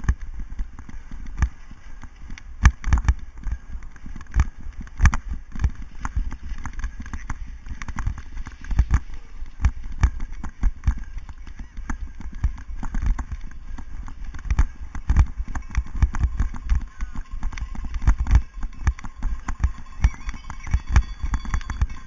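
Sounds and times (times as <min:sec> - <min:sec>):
wind rumble on microphone: 0:00.0 - 0:22.0.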